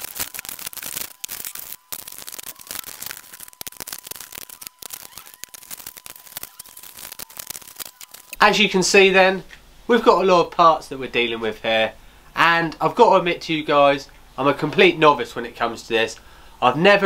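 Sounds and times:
plastic packaging rustling: 0.0 - 8.4.

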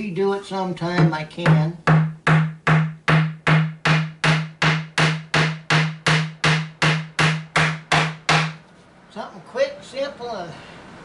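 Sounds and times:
hammer tapping nail into wood: 1.0 - 8.6.

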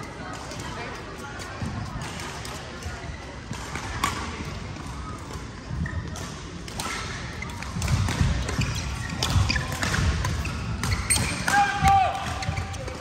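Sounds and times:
racket hitting shuttlecock: 6.2 - 12.6.

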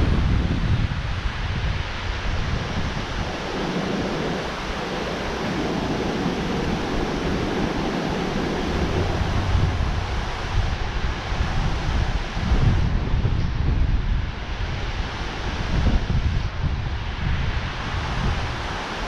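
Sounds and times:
wind buffeting microphone: 0.0 - 19.0
water rushing: 1.2 - 13.0, 17.2 - 19.0.

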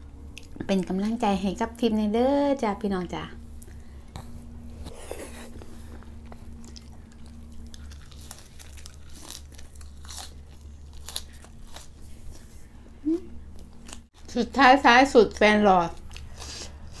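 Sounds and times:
crisp crunching and chewing: 3.6 - 12.7, 13.5 - 14.3, 15.9 - 17.0.

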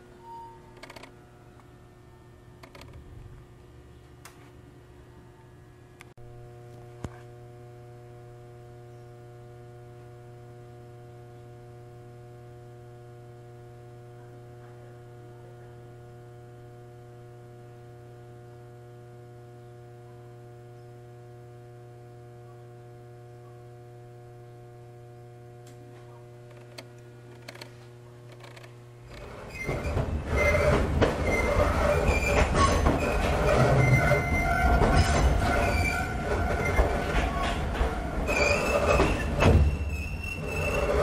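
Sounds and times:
electrical hum with higher tones: 0.0 - 41.0.

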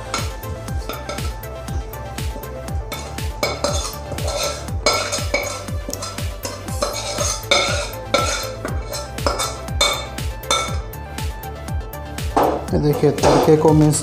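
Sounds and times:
metal utensil scraping pan: 0.0 - 1.8, 2.8 - 10.9
background music with beat: 0.0 - 14.0.

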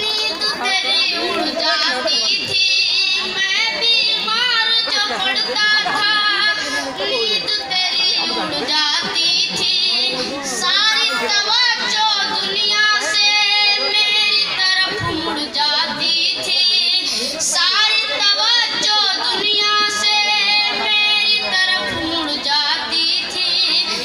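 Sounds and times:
boy singing into a microphone: 0.0 - 24.0.

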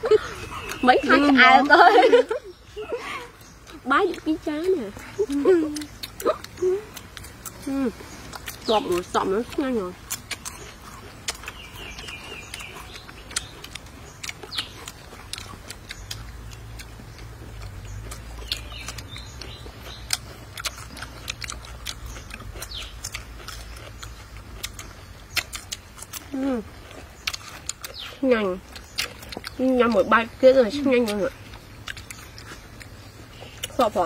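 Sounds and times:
crunchy chewing of cucumber: 0.0 - 34.0
faint bird chirps: 10.4 - 15.0.

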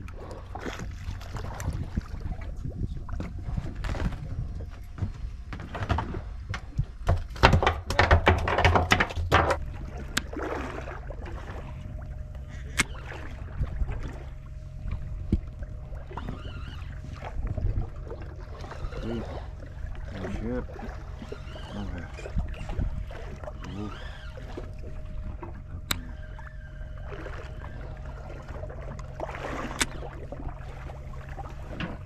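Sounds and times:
steady low hum: 0.0 - 32.0
water noise: 0.0 - 32.0
wind: 0.0 - 32.0
fishing gear knocking and rattling: 4.9 - 9.6.

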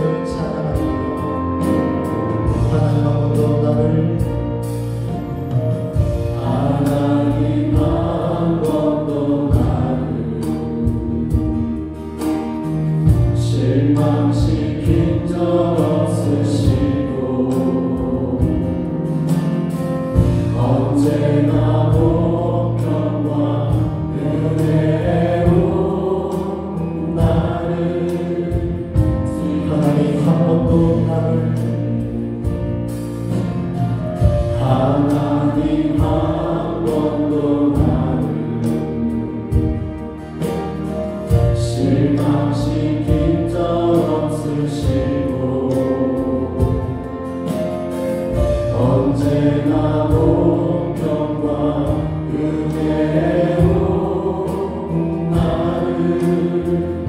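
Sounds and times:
bass guitar: 0.0 - 57.0
keyboard: 0.0 - 57.0
many voices singing together: 0.0 - 57.0
drum hits: 4.2 - 8.8.

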